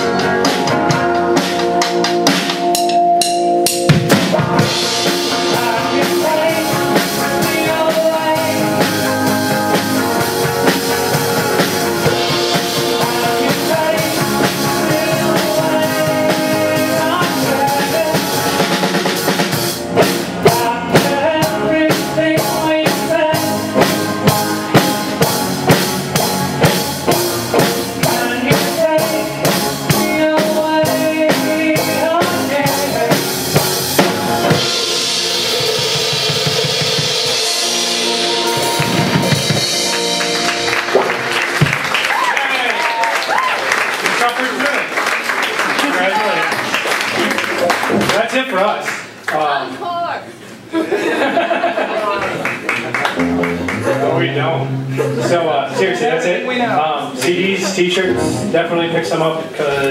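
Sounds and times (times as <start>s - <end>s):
drum hits: 0.0s - 42.0s
live band playing: 0.0s - 50.7s, 51.9s - 59.9s.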